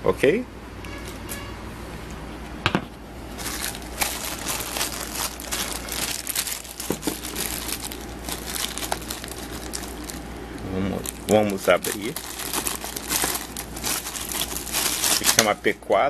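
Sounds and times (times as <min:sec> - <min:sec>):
plastic bag crinkling: 0:03.3 - 0:15.8.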